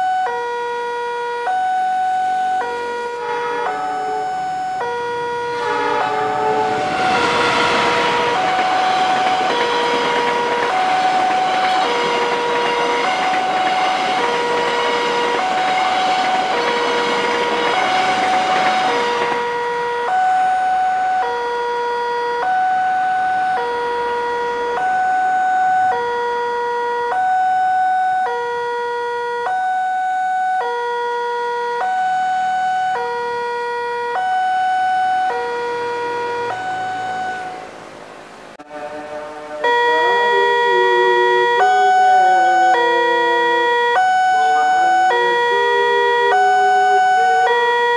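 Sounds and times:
two-tone crossing alarm: 0:00.0 - 0:37.9, 0:38.6 - 0:47.9
train coaches rumbling: 0:02.7 - 0:21.6, 0:22.5 - 0:26.3, 0:34.4 - 0:47.9.

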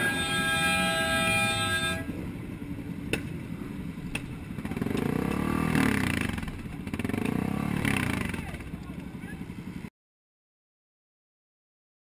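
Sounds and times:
vehicle horn: 0:00.0 - 0:02.2
engine note rising: 0:00.0 - 0:02.3
road and engine noise: 0:00.0 - 0:09.9.

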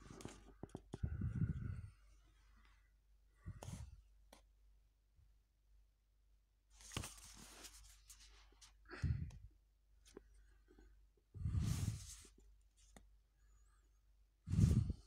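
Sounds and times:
comic book pages rustling: 0:06.7 - 0:08.8.

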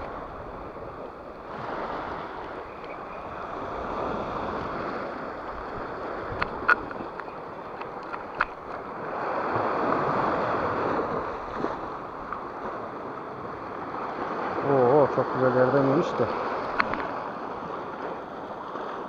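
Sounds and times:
sea waves on rocky shore: 0:00.0 - 0:19.0
sharp clicks: 0:06.3 - 0:08.6.

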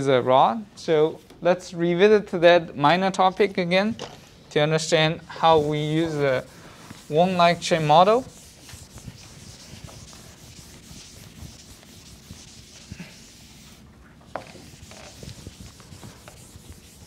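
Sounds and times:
eraser rubbing on blackboard: 0:05.4 - 0:17.0.

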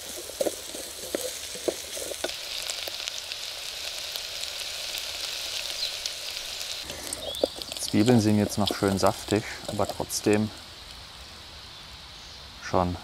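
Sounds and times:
onions sizzling in oil: 0:00.0 - 0:12.4.

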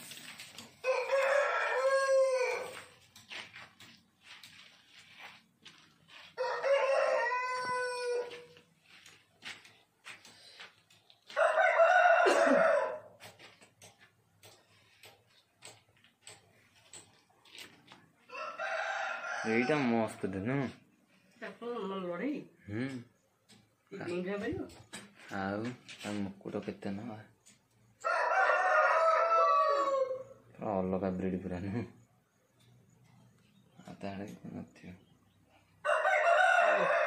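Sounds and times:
roosters crowing: 0:00.6 - 0:03.1, 0:06.2 - 0:08.8, 0:11.2 - 0:13.5, 0:18.2 - 0:20.4, 0:27.8 - 0:30.6, 0:35.6 - 0:37.0.

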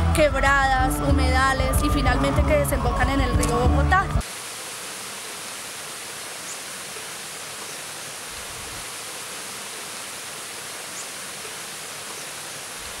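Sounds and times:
flowing water rushing: 0:04.2 - 0:13.0.

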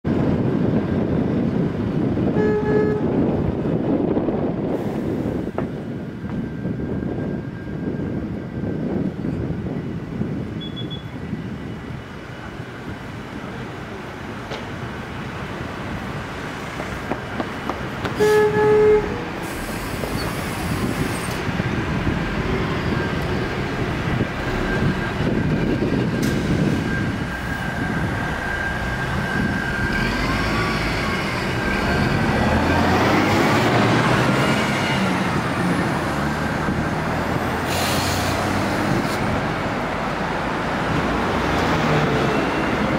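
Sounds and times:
street traffic: 0:00.0 - 0:42.9
bus horn blast: 0:02.3 - 0:03.2, 0:18.2 - 0:19.4
rising engine whine: 0:18.2 - 0:42.9.

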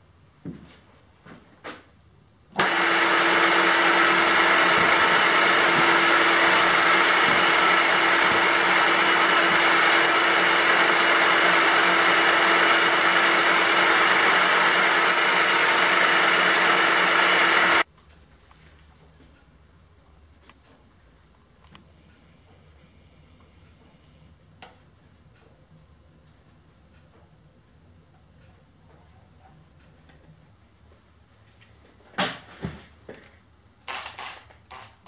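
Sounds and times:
milling machine motor humming: 0:02.6 - 0:17.9.

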